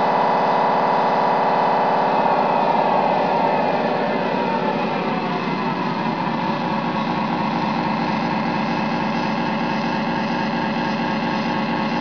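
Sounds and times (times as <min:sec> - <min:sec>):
simulated diesel engine running: 0:00.0 - 0:12.0.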